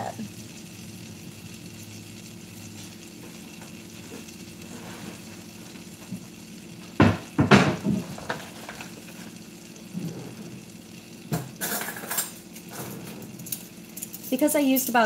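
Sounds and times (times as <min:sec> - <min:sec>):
butter sizzling in a pan: 0:00.0 - 0:15.0
loud knocks and rustles: 0:07.0 - 0:08.5.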